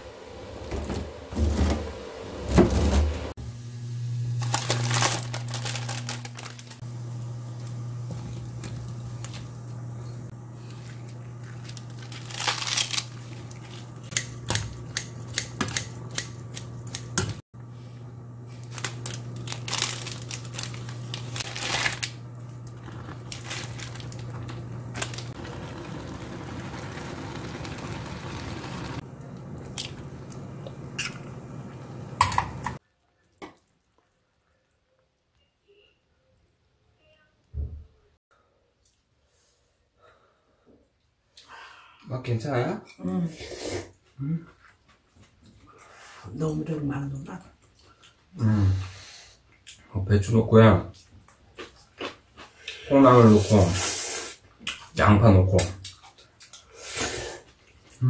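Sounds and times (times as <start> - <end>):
seasoning packet crinkling and tearing: 4.3 - 6.8, 11.4 - 14.0, 18.5 - 26.0
water poured into frying pan: 23.2 - 29.0.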